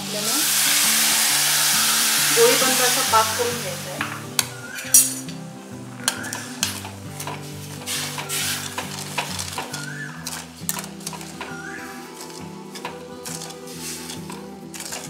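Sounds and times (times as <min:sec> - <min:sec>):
soft background music: 0:00.0 - 0:15.0
metal ladle scraping pan: 0:06.0 - 0:15.0.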